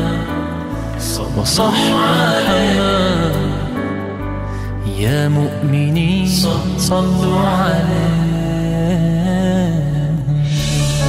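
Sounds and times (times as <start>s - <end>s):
man singing long held notes: 0.0s - 3.9s, 4.8s - 11.0s
low steady drone: 10.4s - 11.0s.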